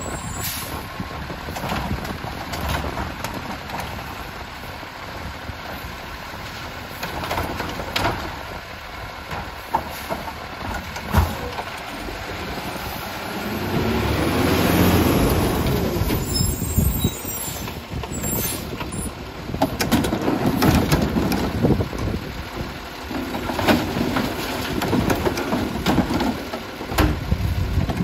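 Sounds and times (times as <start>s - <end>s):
air brakes hissing: 0.0s - 0.9s
garbage truck diesel engine: 0.0s - 28.0s.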